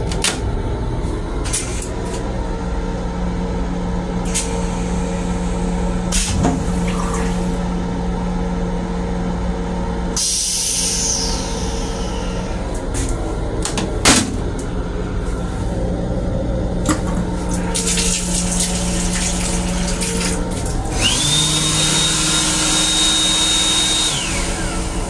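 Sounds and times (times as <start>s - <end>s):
train running rumble: 0.0s - 21.4s
high whine: 0.0s - 25.0s
faucet running water into basin: 17.6s - 20.8s.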